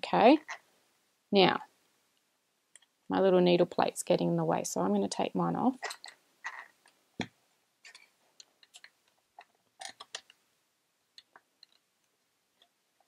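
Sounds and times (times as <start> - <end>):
plastic parts clicking and tapping: 6.8 - 10.4.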